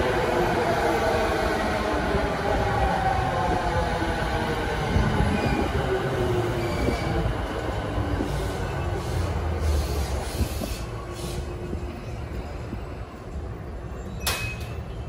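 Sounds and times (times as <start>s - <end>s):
train braking to a stop: 4.8s - 15.0s
short air hisses: 8.2s - 11.5s.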